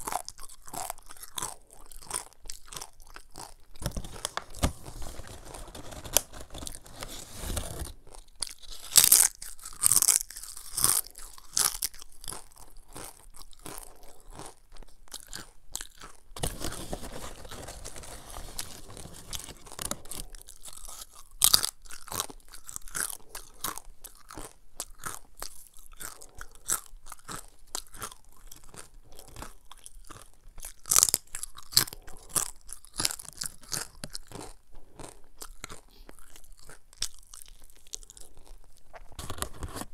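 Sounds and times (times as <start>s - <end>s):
crunching and chewing chips: 0.0s - 39.9s
chip bag rustling: 3.8s - 8.2s, 16.4s - 20.4s.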